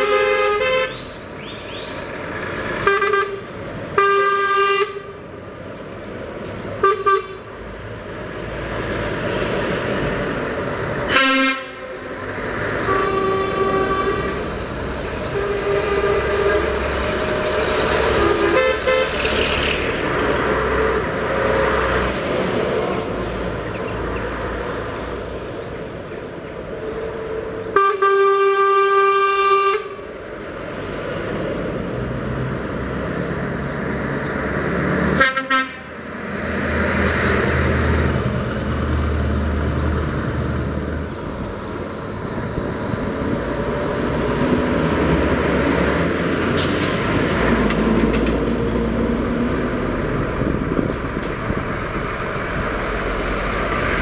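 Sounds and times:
truck air horns blasting: 0.0s - 1.3s, 2.7s - 5.2s, 6.8s - 7.6s, 11.1s - 14.6s, 15.2s - 19.4s, 20.1s - 21.6s, 27.1s - 30.1s, 35.1s - 36.0s
diesel engines rumbling: 0.0s - 54.0s.

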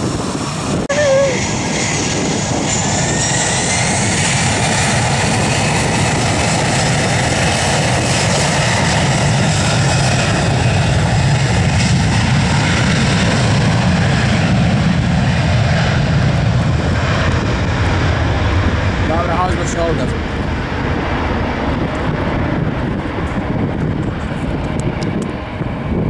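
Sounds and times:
jet engines at takeoff thrust: 0.0s - 26.0s.

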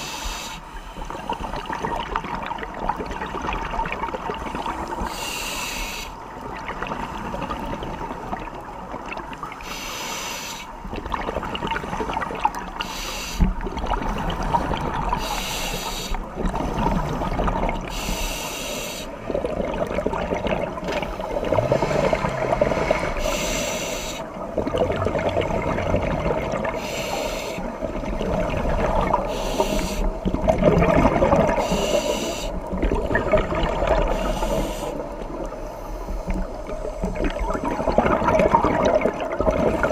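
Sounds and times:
regulator breathing hiss: 0.0s - 1.0s, 5.0s - 6.2s, 9.6s - 10.7s, 12.8s - 13.5s, 15.2s - 16.2s, 17.9s - 19.2s, 22.8s - 24.3s, 26.8s - 27.8s, 29.3s - 30.2s, 31.6s - 32.7s, 34.1s - 36.3s
bubbling and gurgling: 1.0s - 5.2s, 6.2s - 9.8s, 10.7s - 18.2s, 19.2s - 39.9s.

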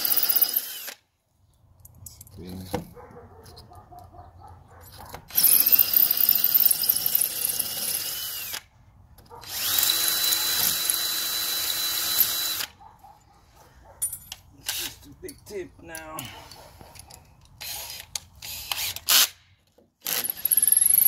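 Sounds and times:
cordless drill boring into brick: 0.0s - 1.0s, 5.3s - 8.7s, 9.4s - 12.7s, 17.6s - 19.4s, 20.0s - 21.0s.

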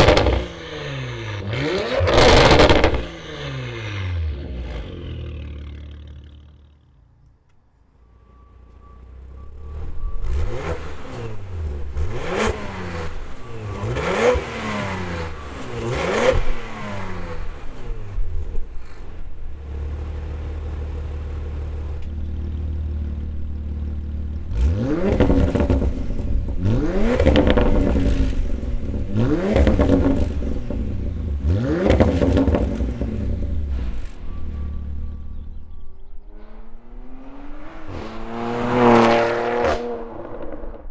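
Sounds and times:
car engine revving and idling: 0.0s - 7.3s, 8.1s - 40.9s.

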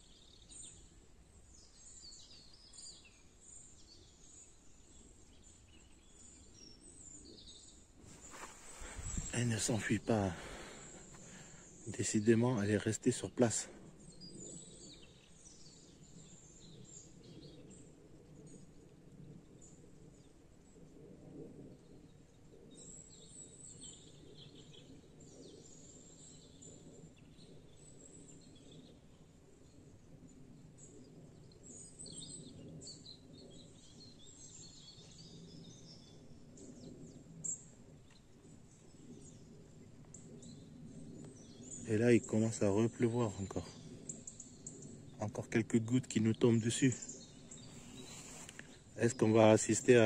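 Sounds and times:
bird chirps: 40.2s - 50.0s.

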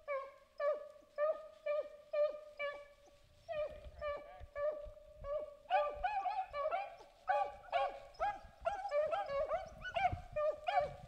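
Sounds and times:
hounds baying: 0.0s - 11.0s.

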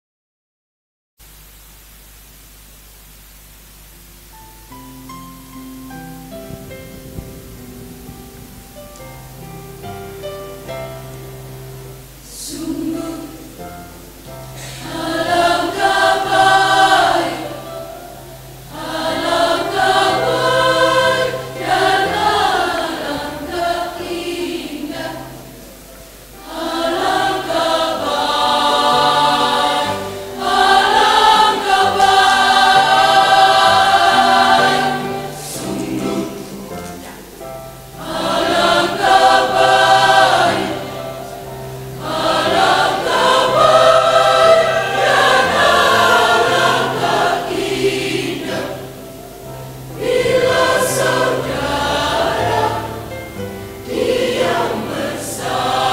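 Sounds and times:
low sustained notes: 3.9s - 55.9s
women's choir singing hymn: 12.2s - 55.9s.

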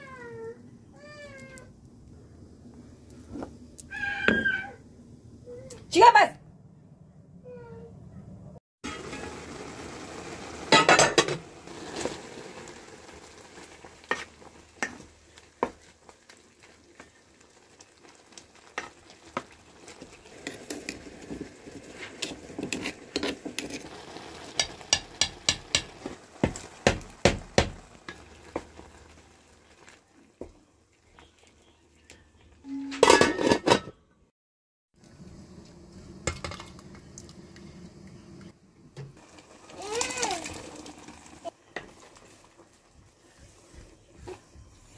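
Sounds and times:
vegetables sizzling in pot: 8.8s - 31.7s, 35.0s - 44.9s
metal pot lid clattering: 10.7s - 11.4s, 32.9s - 34.0s.

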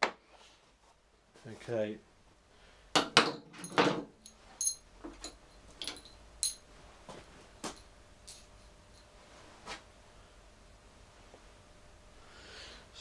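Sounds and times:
metallic clinks with short ring: 3.6s - 6.7s.

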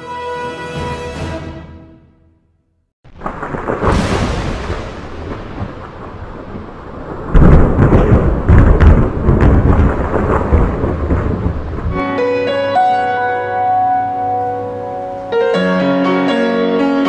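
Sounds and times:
thunder rumble with crackles: 3.1s - 12.1s.

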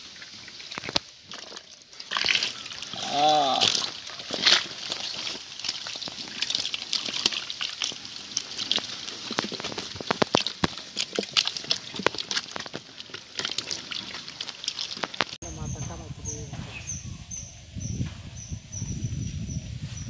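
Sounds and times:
fish splashing in shallow water: 0.0s - 15.4s.

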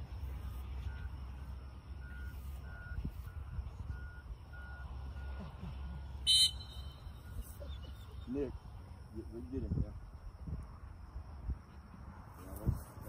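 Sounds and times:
faint electronic beeping: 0.0s - 9.0s.

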